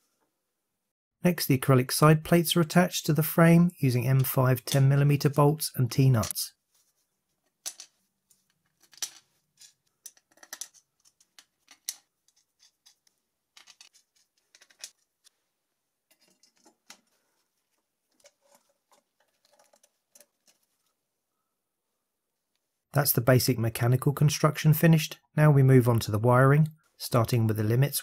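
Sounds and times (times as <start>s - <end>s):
bolts clicking and scraping: 7.4s - 15.4s, 16.1s - 20.9s.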